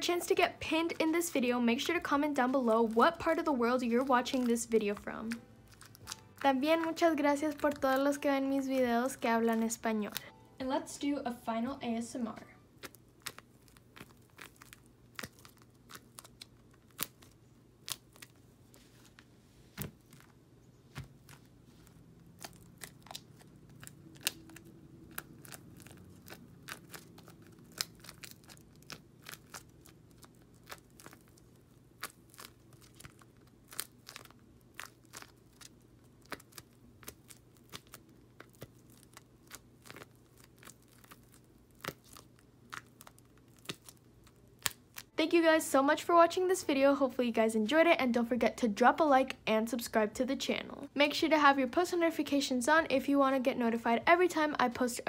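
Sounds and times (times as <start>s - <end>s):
crinkly paper clicks: 1.8s - 8.2s, 12.8s - 45.1s.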